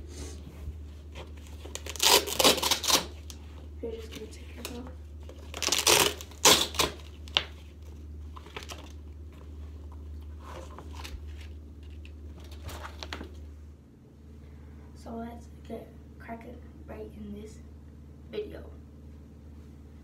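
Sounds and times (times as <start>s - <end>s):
low hum: 0.0s - 20.0s
rustles and clicks: 0.6s - 13.5s
velcro straps ripping: 1.7s - 3.4s, 5.5s - 7.4s.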